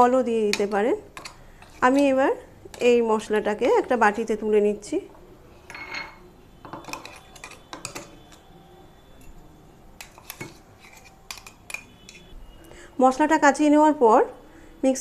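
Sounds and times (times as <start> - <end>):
metal spoon scraping steel jar: 0.6 - 2.9, 5.6 - 8.4, 10.0 - 12.4.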